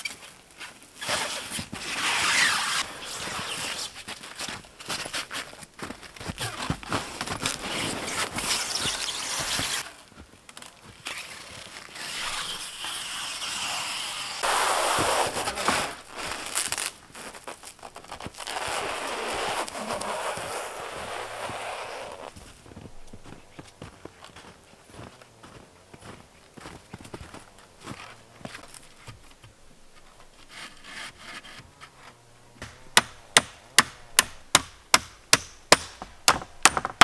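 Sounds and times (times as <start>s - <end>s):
plastic stretch film crackling: 11.0s - 22.4s.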